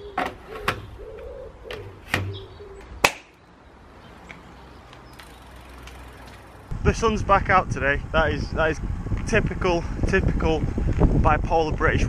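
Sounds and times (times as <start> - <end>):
bike clicks and knocks: 0.0 - 3.4, 4.2 - 6.7.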